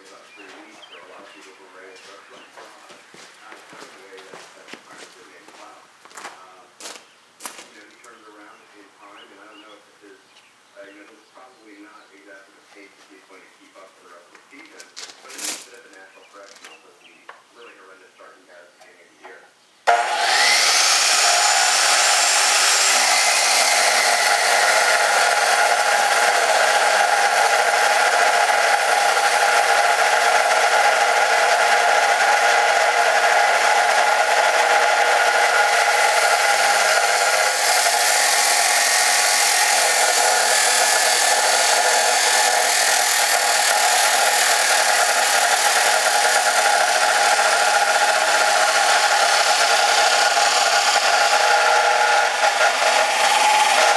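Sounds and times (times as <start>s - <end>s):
chop saw cutting steel tubing: 19.9s - 53.9s.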